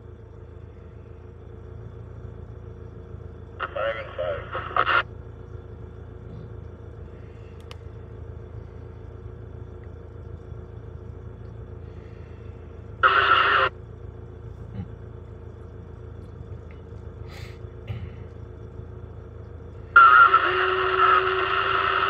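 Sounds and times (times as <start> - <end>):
diesel engines idling: 0.0 - 22.0
cb radio noise burst: 13.0 - 13.7, 19.9 - 22.0.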